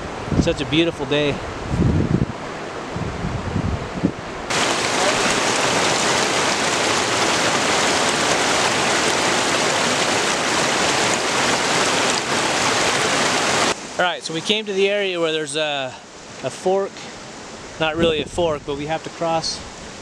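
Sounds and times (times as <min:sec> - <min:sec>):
creek water rushing: 0:04.4 - 0:18.0, 0:18.8 - 0:20.0.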